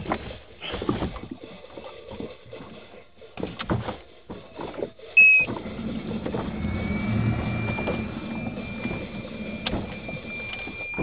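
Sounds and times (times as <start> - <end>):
car electronic beep: 5.2 - 5.6, 6.5 - 11.0
car engine humming: 5.2 - 11.0.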